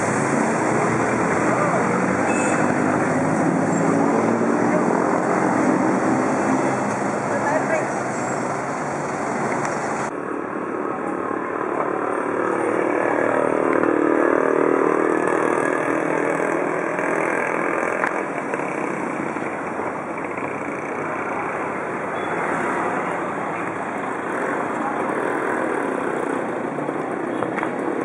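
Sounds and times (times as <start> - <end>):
vehicle engines running: 0.0 - 10.1
street traffic noise: 0.0 - 28.0.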